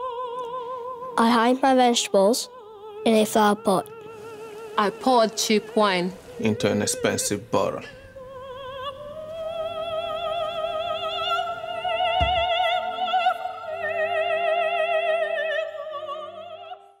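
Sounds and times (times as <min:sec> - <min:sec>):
low thud: 0:12.2 - 0:12.8.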